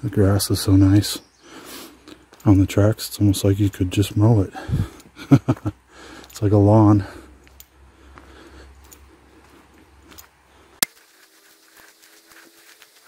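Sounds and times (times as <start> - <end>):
footsteps rustling through grass: 8.2 - 13.0.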